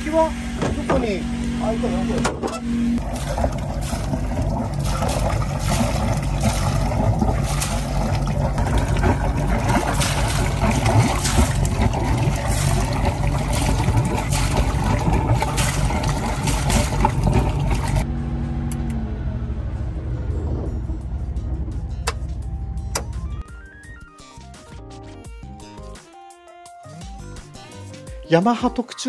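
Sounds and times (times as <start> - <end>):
diesel boat engine running: 0.0 - 23.6
water pouring and splashing: 3.0 - 18.1.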